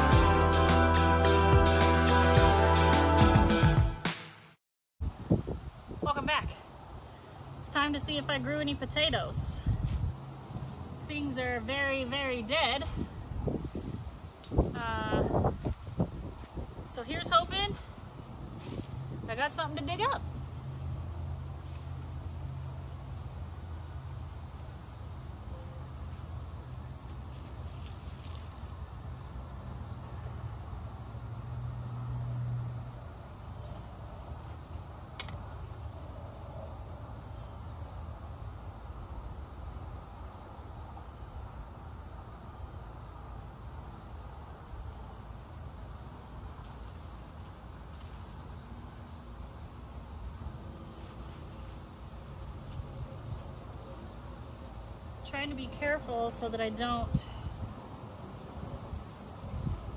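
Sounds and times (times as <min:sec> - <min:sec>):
insects trilling: 0:05.0 - 0:59.9
sharp click: 0:35.2 - 0:35.4.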